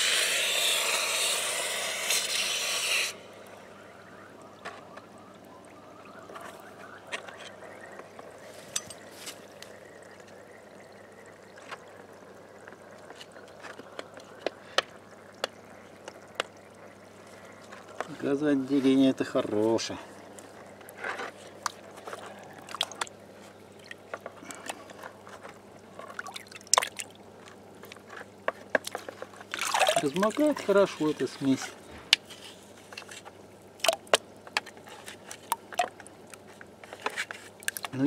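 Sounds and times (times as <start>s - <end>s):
loud steam hiss: 0.0s - 3.2s
faint bubbling with small pops: 3.6s - 38.0s.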